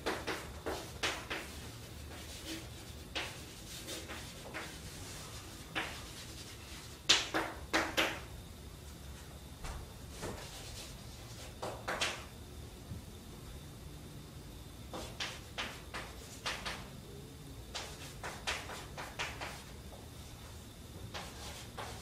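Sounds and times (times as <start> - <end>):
chalk scratching on chalkboard: 0.1 - 7.4, 10.2 - 11.6, 14.9 - 16.8, 17.7 - 19.8, 21.1 - 22.0.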